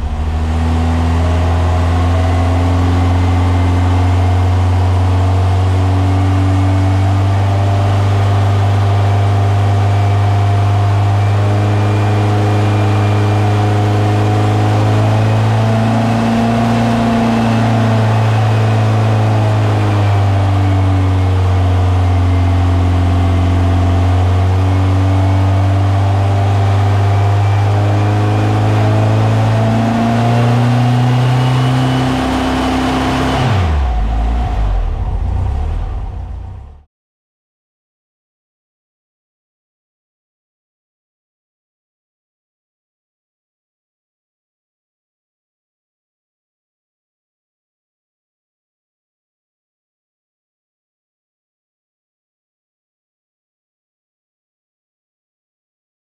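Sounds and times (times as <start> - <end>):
air-cooled engine running: 0.0 - 4.2.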